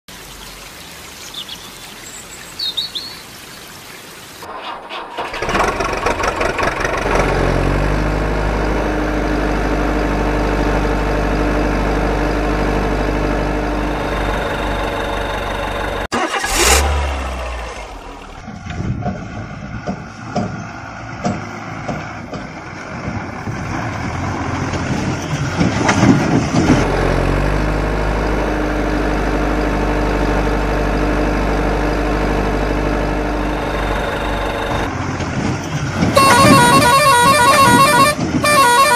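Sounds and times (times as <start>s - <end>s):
water trickling over stones: 0.1s - 4.5s
truck engine running: 4.5s - 38.9s.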